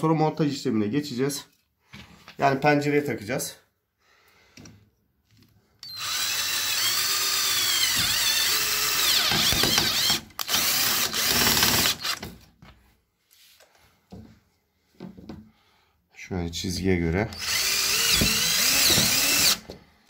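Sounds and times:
power drill driving a screw: 5.8s - 12.3s, 17.3s - 19.7s
faint handling sounds: 12.6s - 15.4s.

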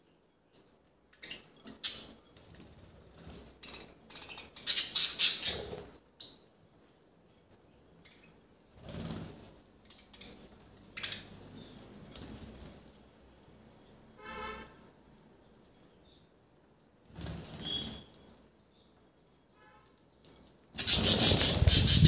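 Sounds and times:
budgerigars chirping and chattering: 3.6s - 5.8s, 20.8s - 22.0s.

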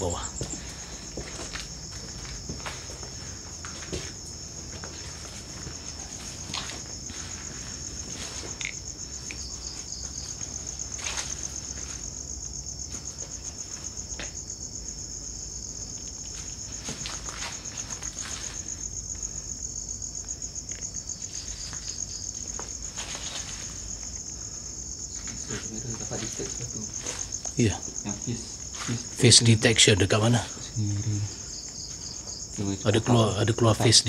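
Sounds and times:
crickets trilling: 0.0s - 34.0s
soft crackles and rustles: 16.0s - 19.2s, 20.7s - 24.3s.

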